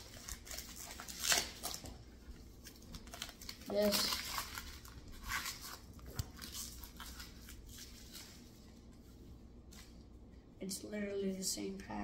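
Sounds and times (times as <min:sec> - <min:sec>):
foil pack tearing and crinkling: 0:00.0 - 0:02.0, 0:02.6 - 0:08.2.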